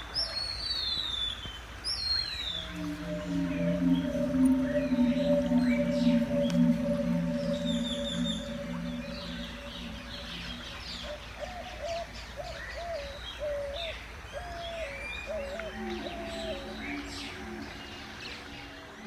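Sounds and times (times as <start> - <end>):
soft steady low tones: 2.4 - 12.1, 15.4 - 19.0
repeated low note: 2.5 - 11.4, 15.6 - 18.8.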